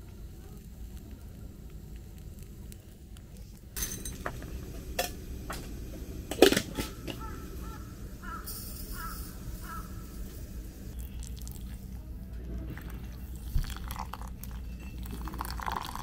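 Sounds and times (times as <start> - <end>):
crows cawing: 7.0 - 10.3.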